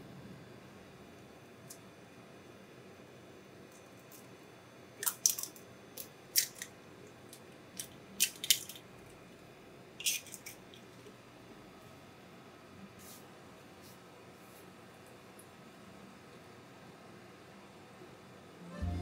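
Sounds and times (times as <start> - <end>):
egg frying crackling clicks: 5.0 - 8.9.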